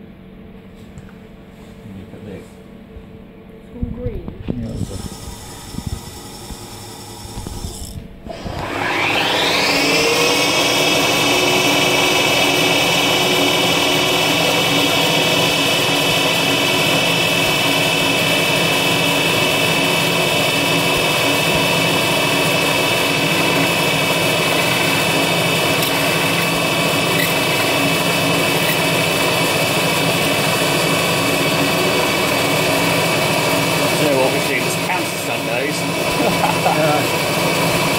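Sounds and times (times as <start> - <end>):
milling machine spindle whine: 4.6 - 37.9
end mill cutting metal plate: 4.8 - 37.9.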